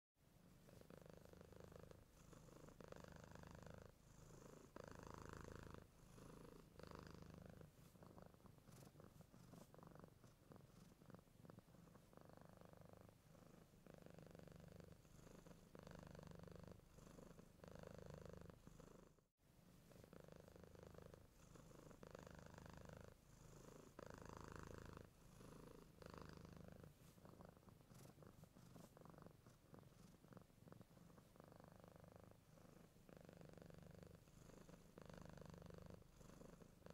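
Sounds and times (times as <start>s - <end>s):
cat purring: 0.3s - 36.9s.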